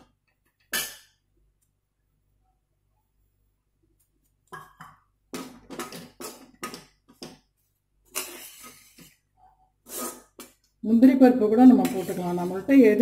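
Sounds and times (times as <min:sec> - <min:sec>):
metal spoon scraping a pan: 0:08.1 - 0:09.2, 0:11.4 - 0:13.0.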